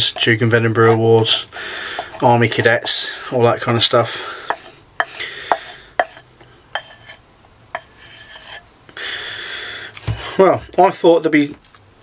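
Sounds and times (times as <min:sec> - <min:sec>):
spoon scraping glass bowl: 0:02.0 - 0:03.0, 0:04.4 - 0:08.6.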